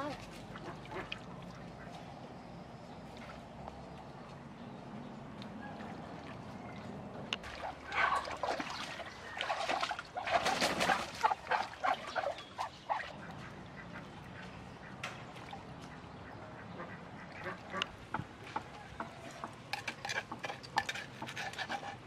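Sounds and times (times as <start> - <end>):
ducks quacking: 0.0 - 2.1, 7.5 - 15.1, 15.7 - 19.6
duck wingbeats: 7.5 - 15.0.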